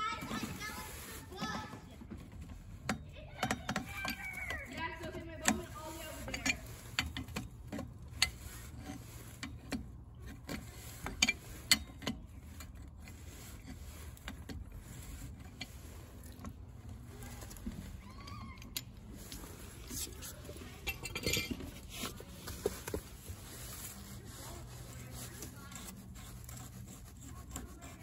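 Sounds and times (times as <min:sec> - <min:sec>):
metallic clicks of pipe wrenches: 0:02.4 - 0:23.1.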